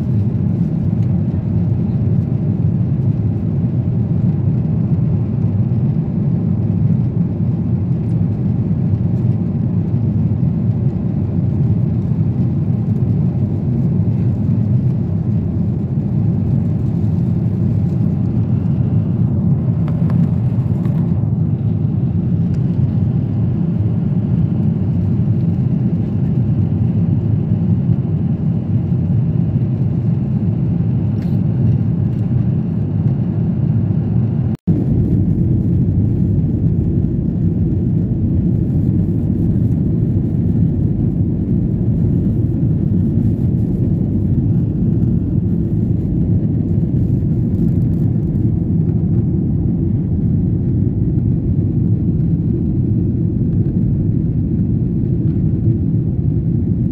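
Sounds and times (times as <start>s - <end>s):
jet airliner cabin rumble: 0.0s - 56.9s.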